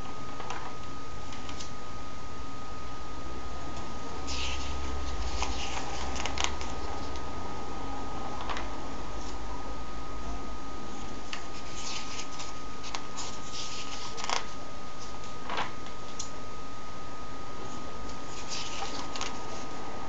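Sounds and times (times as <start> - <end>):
paper pages rustling: 4.3 - 7.2, 11.3 - 16.2, 18.2 - 19.7.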